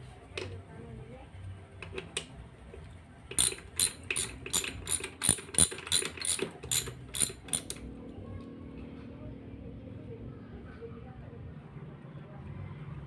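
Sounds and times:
ratchet wrench clicking: 3.3 - 7.8.

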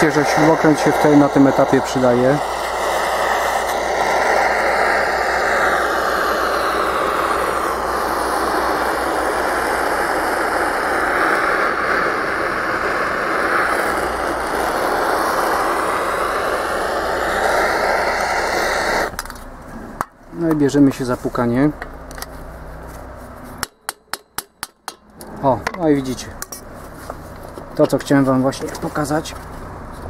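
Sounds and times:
gas torch hissing: 0.0 - 20.1.

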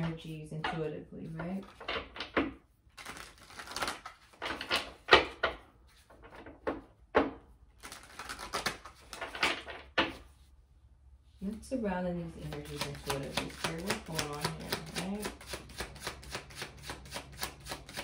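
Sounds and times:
cards being shuffled: 1.2 - 6.8, 7.8 - 10.4, 12.4 - 18.0.

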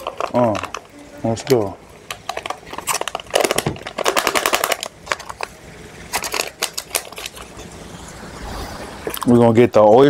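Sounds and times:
foil pouch crinkling: 0.0 - 7.7.

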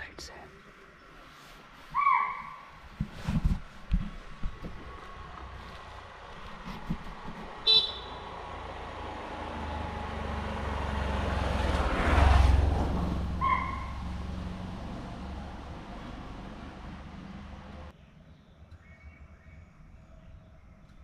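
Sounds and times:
vehicle engine rumble: 0.0 - 21.0
deer alarm calls: 1.9 - 2.7.

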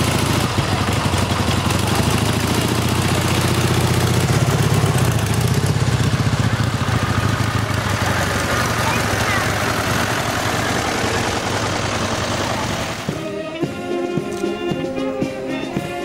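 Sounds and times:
tractor engine chugging: 0.0 - 16.0.

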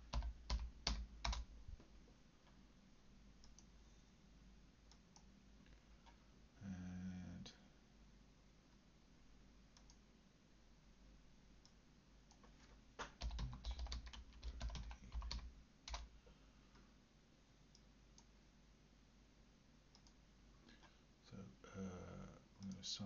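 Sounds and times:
typing on computer keyboard: 0.0 - 1.4, 12.3 - 16.1.

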